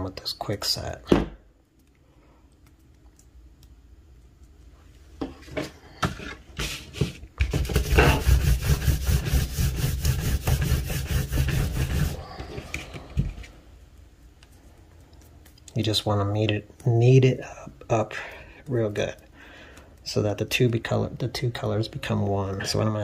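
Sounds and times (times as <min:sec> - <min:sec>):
palms rubbing on paper: 0:06.2 - 0:13.5.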